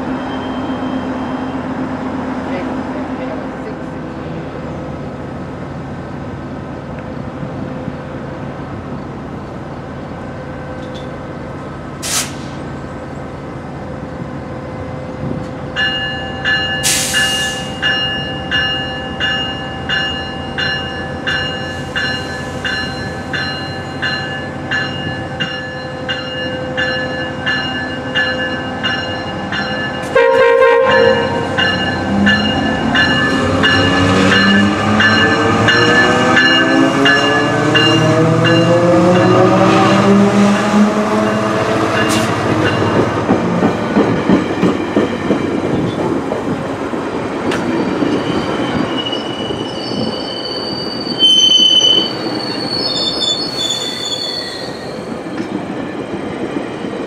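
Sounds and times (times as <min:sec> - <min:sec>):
hiss of air: 0:12.0 - 0:12.7, 0:16.8 - 0:17.8
locomotive bell ringing: 0:15.8 - 0:39.8
train horn: 0:30.1 - 0:31.7.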